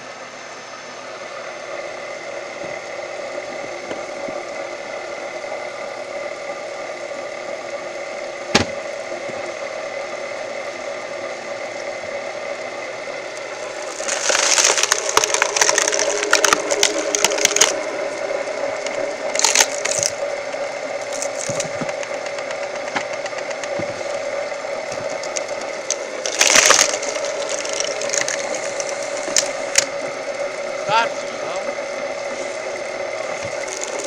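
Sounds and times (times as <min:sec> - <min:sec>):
machine engine humming: 0:00.0 - 0:34.0
wood cracking and splintering: 0:13.5 - 0:18.0, 0:18.6 - 0:30.0, 0:32.2 - 0:34.0.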